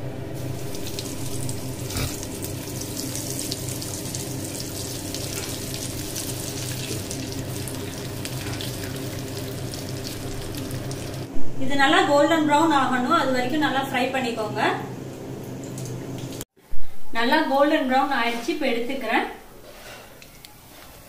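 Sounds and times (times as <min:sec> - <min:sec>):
oil sizzling and crackling: 0:00.4 - 0:11.3.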